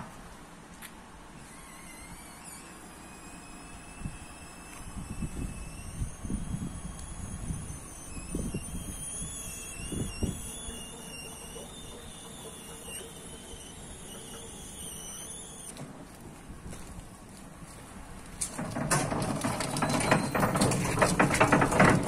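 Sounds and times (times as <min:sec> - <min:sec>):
mechanical hum and whine: 0:00.0 - 0:22.0
low knocks and rattles: 0:18.4 - 0:22.0.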